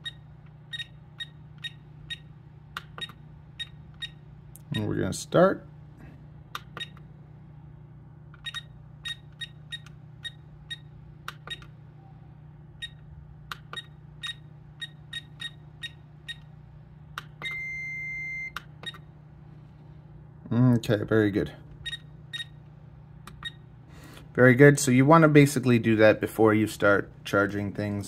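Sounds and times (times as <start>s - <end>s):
charger short beeps: 0.0s - 2.3s, 8.4s - 10.9s, 13.7s - 16.5s, 17.4s - 19.1s, 21.8s - 22.6s
long beep: 17.4s - 18.6s.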